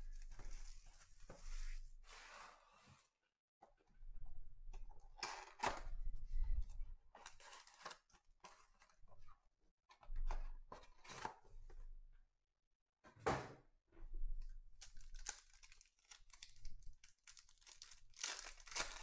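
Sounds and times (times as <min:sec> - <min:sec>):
card packs rustling and scraping: 0:07.3 - 0:08.9.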